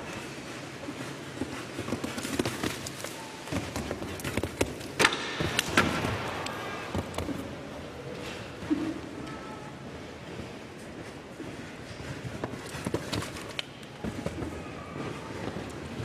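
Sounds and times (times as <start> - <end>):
horse hoofbeats on sand: 0.0 - 5.0, 10.0 - 16.0.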